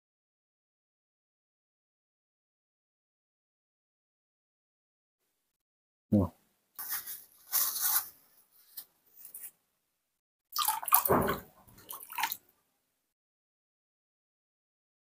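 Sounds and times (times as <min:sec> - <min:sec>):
water splashing and dripping into basin: 0:10.5 - 0:12.5.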